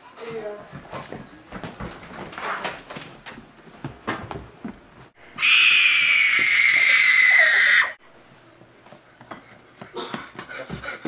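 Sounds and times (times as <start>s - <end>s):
loud shrill screech: 5.4s - 8.0s.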